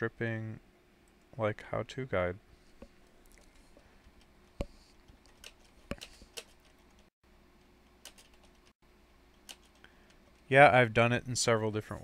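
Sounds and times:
computer keys and mouse clicking: 8.0s - 8.7s, 9.3s - 10.2s.

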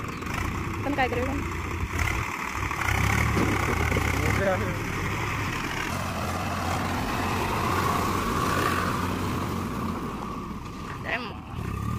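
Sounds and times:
tractor diesel engine under load: 0.0s - 11.9s.

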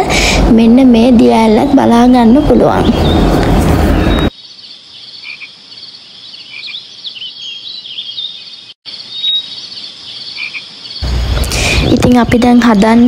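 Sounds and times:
small animals chirping and trilling: 4.0s - 11.1s.

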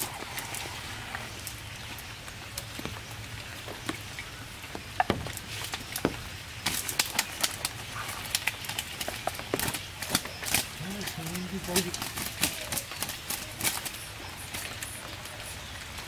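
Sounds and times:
net rustling: 4.8s - 15.4s
fish slapping on tarp: 5.1s - 15.4s.

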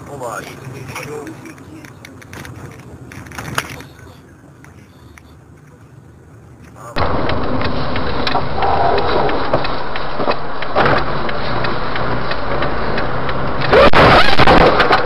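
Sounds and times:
road noise: 0.0s - 15.0s
car engine from inside: 6.8s - 15.0s
loud burst of noise: 13.6s - 15.0s.

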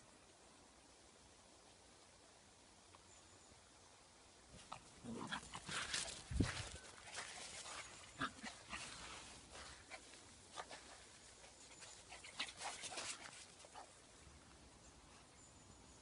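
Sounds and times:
dog paws scraping sand and gravel: 4.6s - 13.9s.

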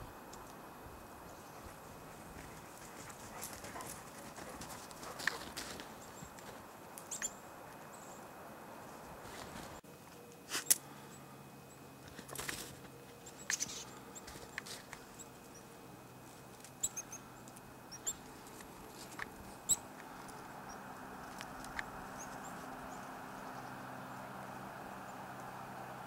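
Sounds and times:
songbird chip calls: 7.1s - 8.2s, 16.8s - 18.2s, 19.6s - 19.9s.

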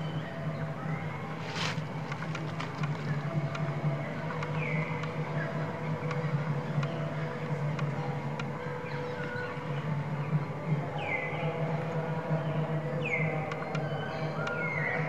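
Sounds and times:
steady low hum: 0.0s - 15.0s
brief rustle: 1.4s - 2.9s.

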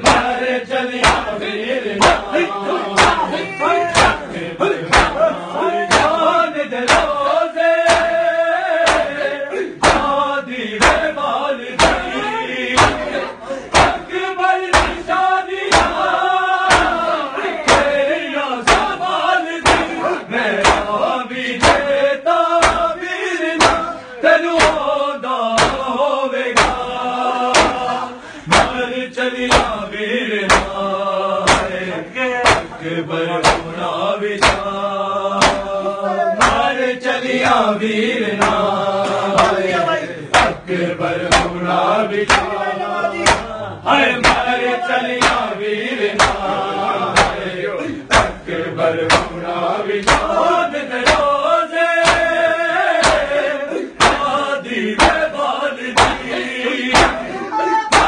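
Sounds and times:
hands striking bare chests: 0.0s - 0.4s, 1.0s - 1.4s, 2.0s - 2.3s, 3.0s - 3.3s, 3.9s - 4.2s, 4.9s - 5.3s, 5.9s - 6.2s, 6.8s - 7.2s, 7.8s - 8.2s, 8.8s - 9.2s, 9.8s - 10.2s, 10.8s - 11.1s, 11.8s - 12.2s, 12.8s - 13.1s, 13.7s - 14.1s, 14.7s - 15.1s, 15.7s - 17.1s, 17.7s - 18.0s, 18.6s - 19.0s, 19.6s - 20.0s, 20.6s - 21.0s, 21.6s - 21.9s, 22.6s - 23.0s, 23.6s - 24.0s, 24.6s - 24.9s, 25.6s - 25.9s, 26.6s - 26.8s, 27.5s - 27.9s, 28.5s - 28.8s, 29.5s - 29.8s, 30.5s - 30.8s, 31.4s - 31.8s, 32.4s - 32.8s, 33.4s - 33.8s, 34.4s - 34.7s, 35.4s - 35.8s, 36.4s - 36.7s, 38.4s - 39.6s, 40.3s - 40.6s, 41.3s - 41.6s, 42.2s - 42.6s, 43.2s - 43.5s, 44.2s - 44.5s, 45.2s - 45.5s, 46.2s - 46.5s, 47.1s - 47.5s, 48.1s - 48.4s, 49.1s - 49.4s, 50.0s - 50.4s, 51.0s - 51.4s, 52.0s - 52.4s, 53.0s - 53.4s, 54.0s - 54.4s, 55.0s - 55.3s, 56.0s - 56.3s, 56.9s - 57.2s
men chanting a lament: 0.0s - 58.0s.

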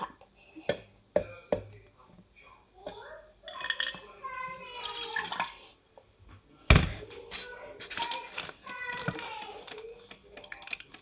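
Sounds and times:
drink trickling into molds: 7.4s - 11.0s.

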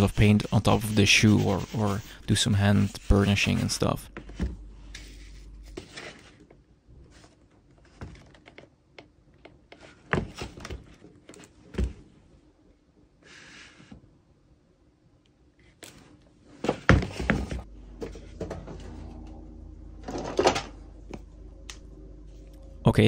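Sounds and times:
boots thumping on table: 16.6s - 17.6s.

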